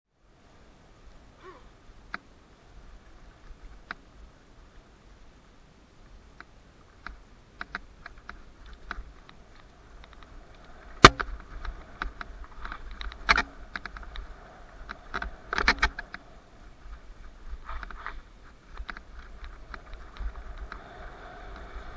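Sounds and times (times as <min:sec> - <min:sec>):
mountain bike rattling on dirt trail: 0:06.9 - 0:21.9.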